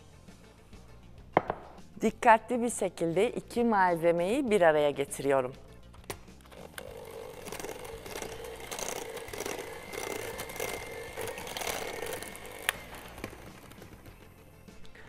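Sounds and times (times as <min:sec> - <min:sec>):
electric hand mixer running: 0:06.5 - 0:14.4.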